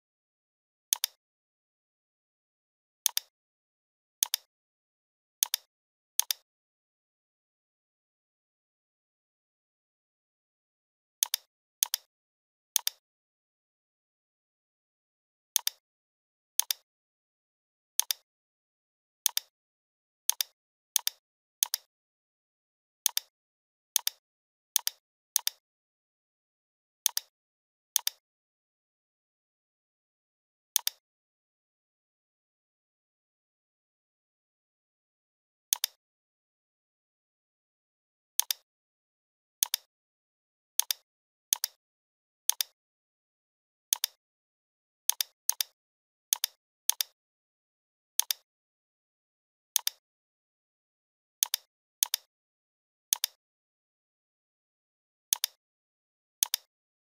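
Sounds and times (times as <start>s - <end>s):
computer mouse clicking: 0.9s - 1.2s, 3.1s - 3.3s, 4.2s - 4.5s, 5.4s - 6.4s, 11.2s - 12.1s, 16.6s - 16.8s, 18.0s - 18.2s, 19.3s - 19.5s, 20.3s - 21.9s, 23.1s - 23.3s, 27.1s - 27.3s, 28.0s - 28.2s, 30.8s - 31.0s, 35.7s - 36.0s, 38.4s - 38.6s, 39.6s - 39.9s, 40.8s - 41.8s, 42.5s - 42.8s, 43.9s - 44.2s, 45.1s - 47.2s, 48.2s - 48.4s, 49.8s - 50.0s, 51.4s - 52.3s, 53.1s - 53.4s, 55.3s - 55.6s, 56.4s - 56.7s.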